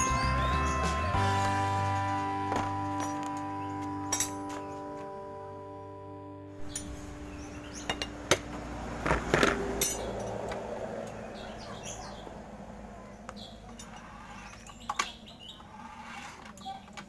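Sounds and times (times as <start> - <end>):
birds chirping: 0.0 - 5.6, 6.6 - 17.0
metallic clinks and knocks: 2.5 - 5.1, 9.1 - 11.2.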